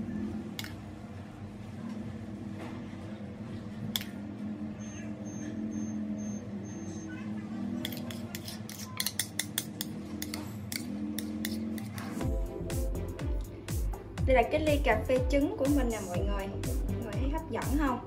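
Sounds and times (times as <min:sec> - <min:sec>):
metal spoon clinking on bowl: 0:07.9 - 0:12.0.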